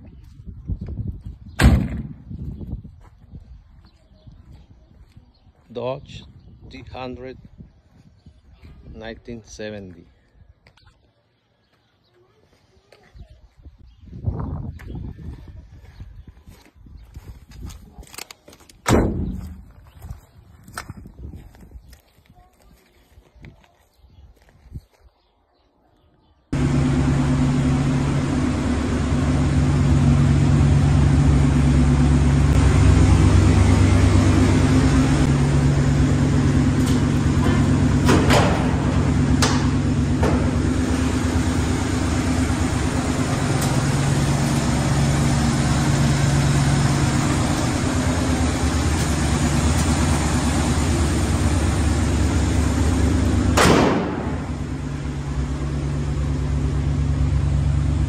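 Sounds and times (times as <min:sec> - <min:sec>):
truck engine running: 0:26.6 - 0:58.0.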